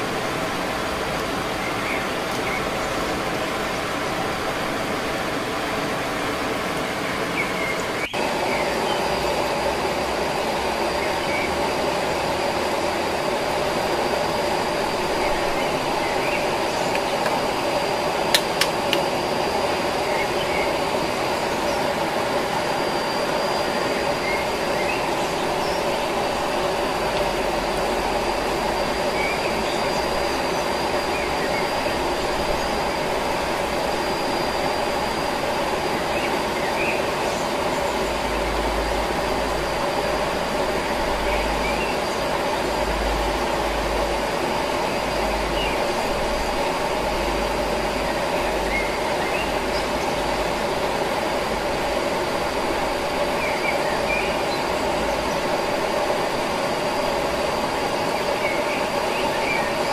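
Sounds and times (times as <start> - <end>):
thin steady high tone: 0.0 - 59.9
stream and waterfall rushing: 14.9 - 59.9.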